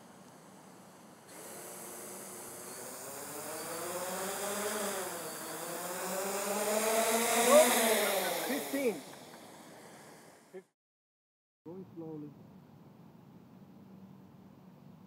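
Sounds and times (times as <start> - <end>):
drone motors buzzing: 0.0 - 10.6.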